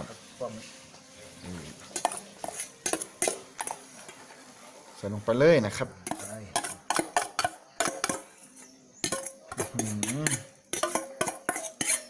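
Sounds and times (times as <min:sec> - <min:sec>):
metal spoon scraping steel bowls: 0:01.8 - 0:04.3, 0:06.0 - 0:12.0.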